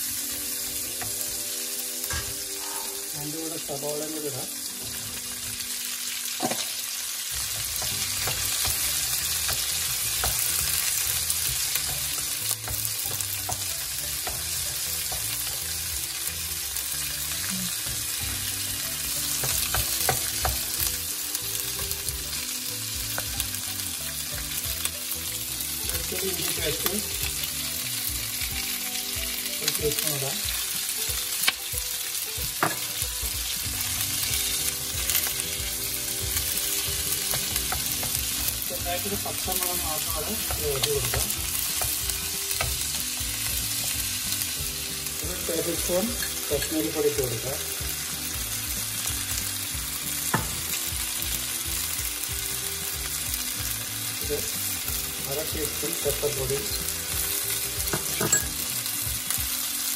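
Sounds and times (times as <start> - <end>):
vegetables sizzling in wok: 0.0 - 59.9
spatula clicking and scraping pan: 7.5 - 15.7, 34.2 - 43.6.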